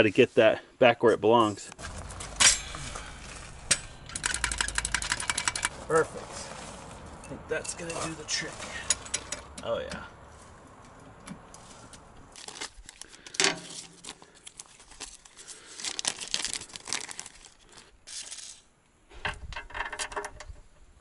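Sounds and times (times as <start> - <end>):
plastic bag crinkling: 12.4 - 18.6.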